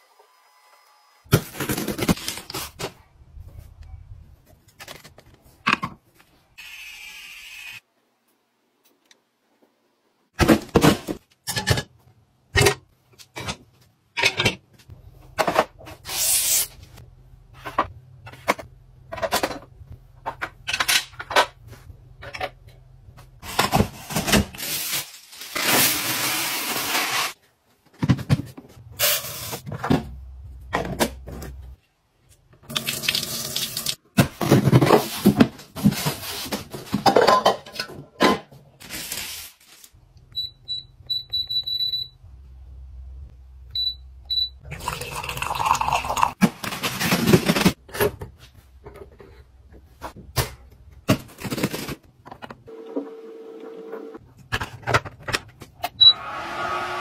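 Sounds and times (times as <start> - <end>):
kitchenware clicks and clatters: 10.7 - 15.8, 17.6 - 21.6, 34.2 - 38.6.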